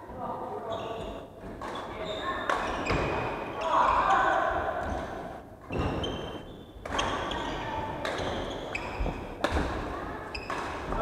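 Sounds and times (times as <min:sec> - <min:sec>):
sneakers squeaking on wooden floor: 0:00.7 - 0:03.9, 0:05.6 - 0:09.4, 0:10.3 - 0:11.0
rackets hitting shuttlecock: 0:07.9 - 0:11.0.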